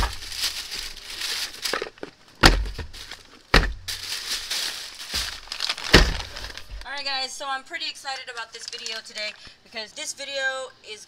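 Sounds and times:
plastic bag rustling: 0:00.0 - 0:07.1, 0:08.2 - 0:09.4
sharp knocks: 0:02.4 - 0:04.0.

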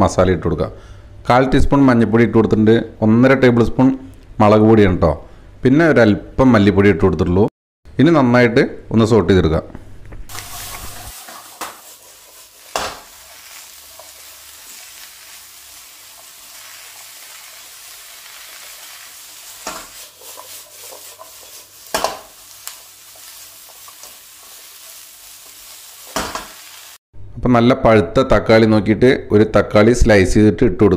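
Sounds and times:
vegetables sizzling in a wok: 0:10.3 - 0:27.0.

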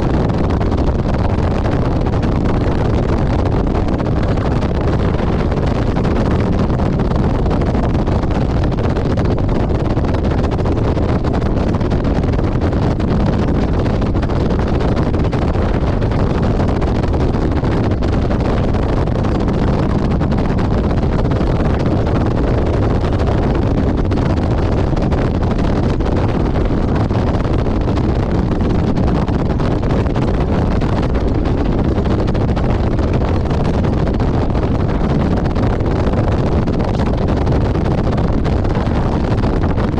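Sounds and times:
wind rush on microphone: 0:00.0 - 0:39.9
road noise: 0:32.6 - 0:37.6.

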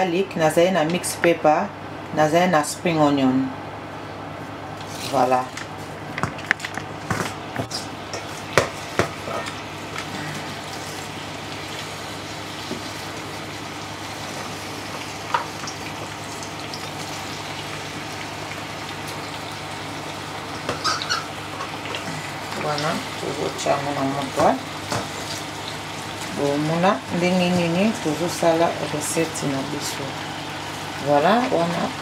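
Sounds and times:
vegetables sizzling in oil: 0:07.0 - 0:32.0.

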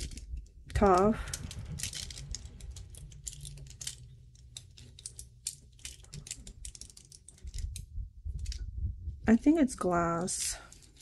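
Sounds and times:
bracelet links clicking: 0:00.0 - 0:08.6.

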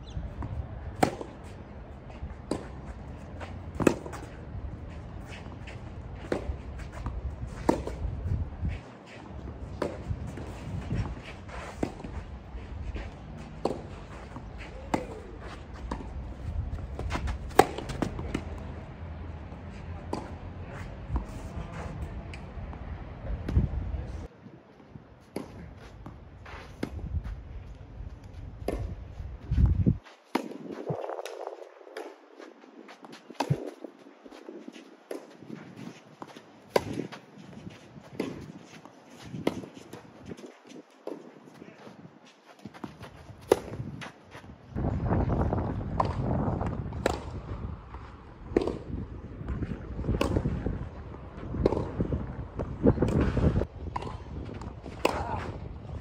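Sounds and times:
wind buffeting microphone: 0:00.0 - 0:19.6, 0:20.3 - 0:24.3, 0:26.8 - 0:32.1, 0:42.8 - 0:56.0
tennis ball hit by rackets: 0:00.9 - 0:01.6, 0:02.4 - 0:04.4, 0:05.2 - 0:08.0, 0:13.4 - 0:18.8, 0:42.6 - 0:43.9, 0:48.5 - 0:50.6, 0:51.5 - 0:55.6
footsteps scuffing clay: 0:01.3 - 0:18.7, 0:25.5 - 0:27.4, 0:29.1 - 0:45.6.

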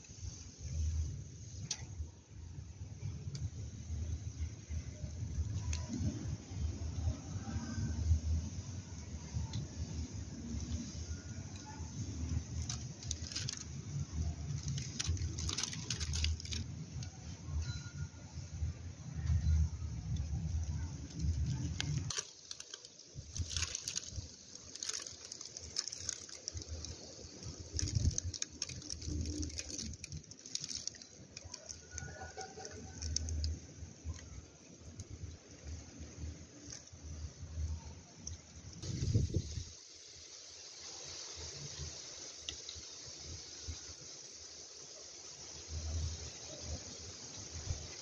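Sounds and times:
rustling and crackling: 0:09.0 - 0:17.3, 0:20.0 - 0:39.8
faint thin high tone: 0:17.5 - 0:18.6.

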